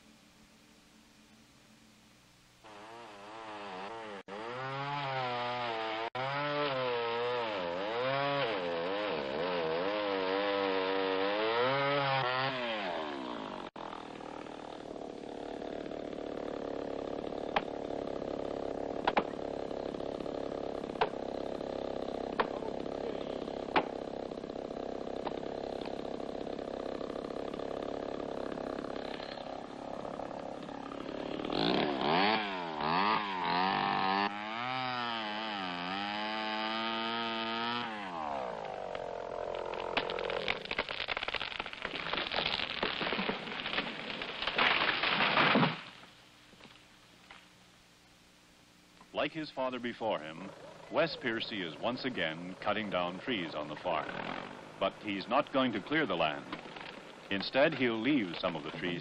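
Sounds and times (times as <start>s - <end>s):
chainsaw cutting wood: 2.6s - 47.4s, 50.2s - 59.0s
sharp knocks: 23.7s - 24.0s.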